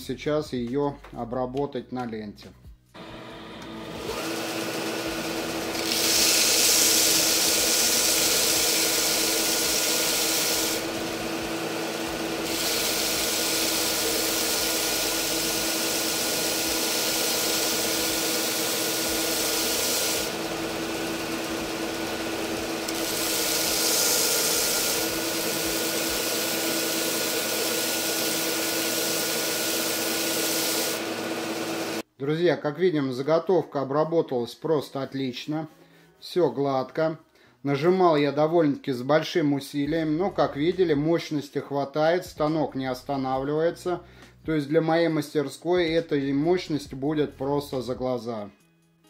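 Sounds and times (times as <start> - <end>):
sander motor humming: 3.0 - 32.0
wood sanding hiss: 5.0 - 32.0.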